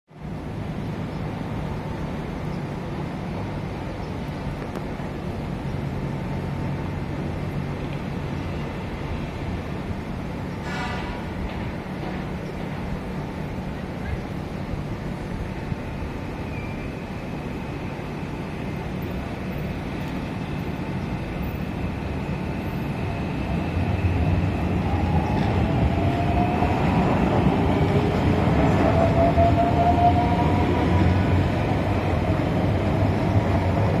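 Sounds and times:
electric train running noise: 0.3s - 34.0s.

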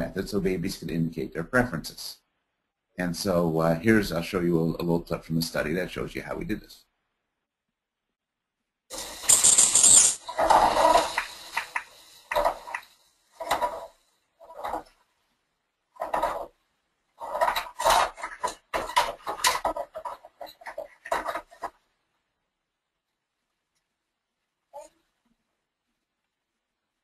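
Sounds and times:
toy figures clattering: 9.0s - 12.8s, 17.2s - 21.8s.

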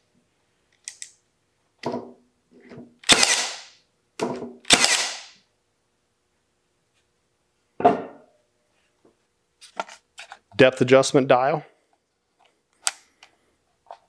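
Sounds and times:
nail gun shots: 3.0s - 3.8s, 4.6s - 5.4s.

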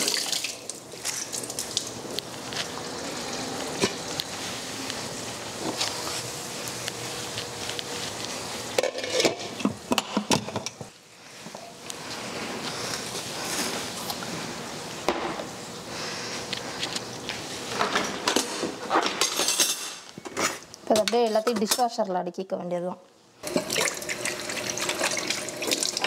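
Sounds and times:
pots and utensils clinking: 8.8s - 10.9s, 17.8s - 21.9s.

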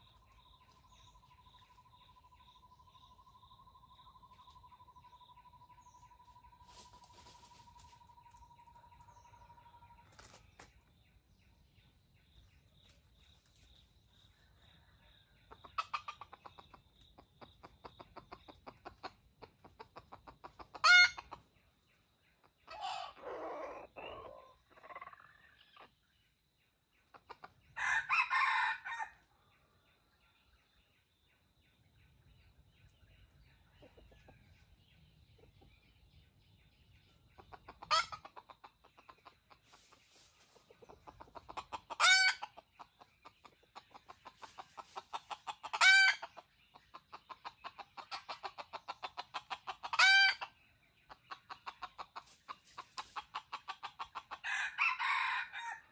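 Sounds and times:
rapid clucking: 15.5s - 21.6s, 37.3s - 54.5s
rooster crowing: 27.8s - 29.2s, 54.4s - 55.9s.

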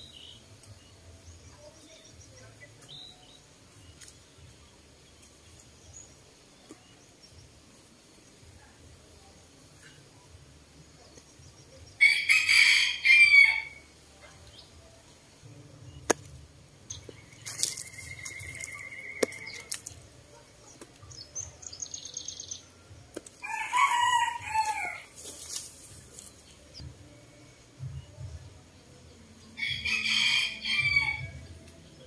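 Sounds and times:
small birds chirping: 0.0s - 12.3s, 13.9s - 30.0s
rooster crowing: 12.0s - 13.8s, 23.4s - 25.1s, 29.6s - 31.4s.

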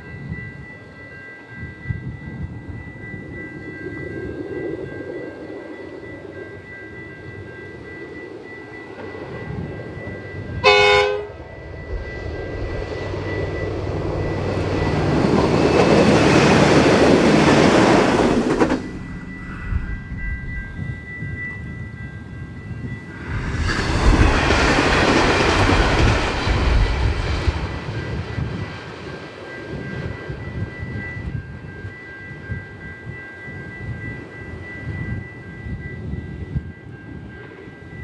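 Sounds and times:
diesel railcar engine and wheels: 0.0s - 38.0s
train horn blast: 10.6s - 11.4s.

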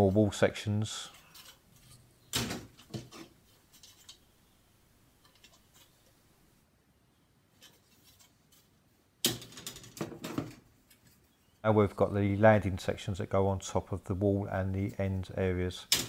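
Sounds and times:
plastic clicks and rustles: 1.1s - 4.3s, 5.2s - 6.2s
plastic sprues clattering: 1.1s - 4.3s.

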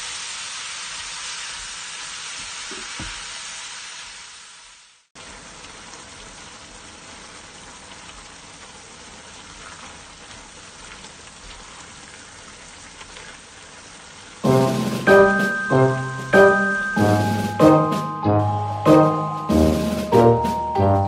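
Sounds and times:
vegetables sizzling in a wok: 0.0s - 21.0s
piano music: 14.4s - 21.0s.

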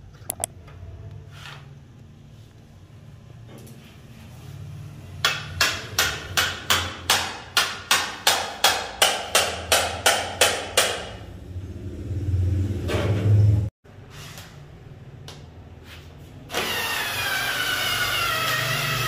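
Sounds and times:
low rumbling noise: 11.2s - 13.7s.

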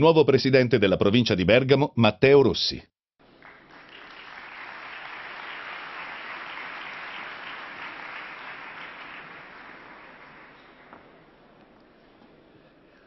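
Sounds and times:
audience applauding: 3.2s - 11.4s.

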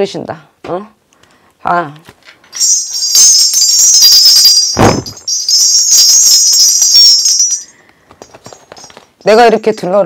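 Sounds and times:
ritual bells jingling: 2.5s - 10.0s.

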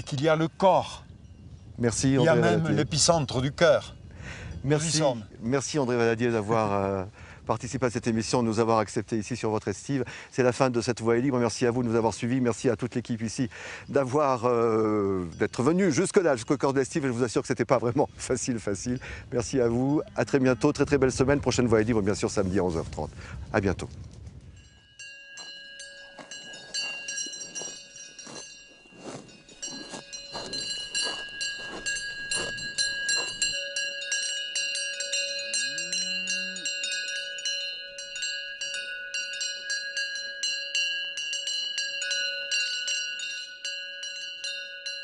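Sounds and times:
cowbells clanking: 10.8s - 21.6s, 24.6s - 45.0s
cow mooing: 35.5s - 37.0s.

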